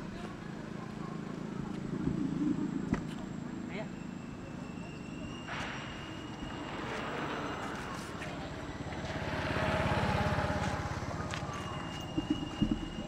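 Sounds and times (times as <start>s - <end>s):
vehicle engine running: 6.7s - 13.0s.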